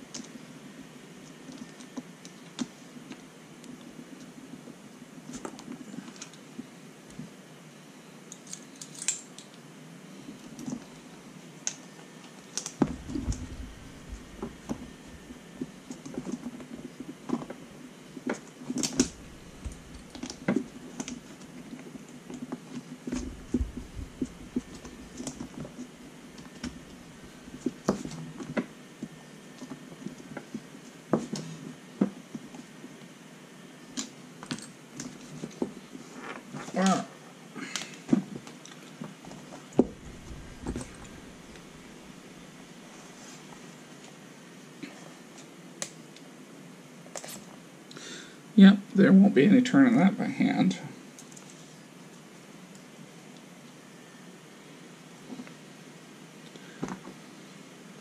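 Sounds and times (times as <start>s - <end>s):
dull thuds: 12.8s - 15.4s, 39.8s - 42.3s.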